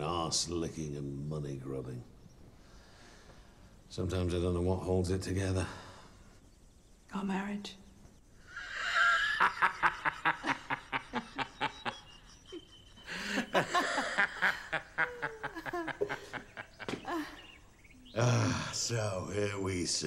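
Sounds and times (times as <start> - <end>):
woman and man laughing: 8.6 - 17.5.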